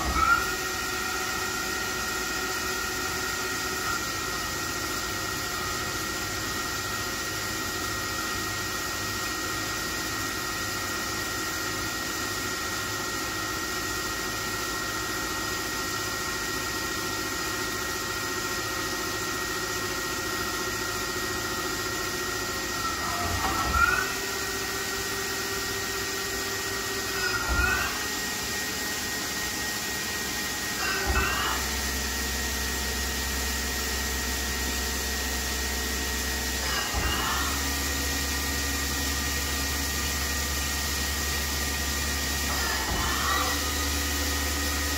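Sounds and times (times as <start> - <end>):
short rising and falling whines: 0.0 - 8.7, 20.9 - 44.9
lathe motor hum: 0.0 - 44.9.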